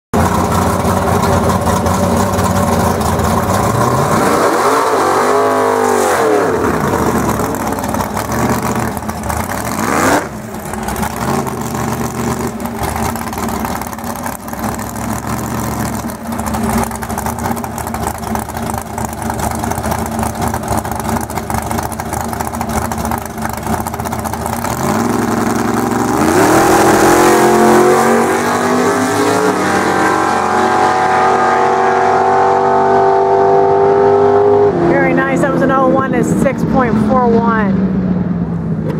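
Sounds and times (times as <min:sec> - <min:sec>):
drag car engines revving: 0:00.2 - 0:38.9
cars accelerating hard: 0:02.9 - 0:20.8, 0:24.5 - 0:38.9.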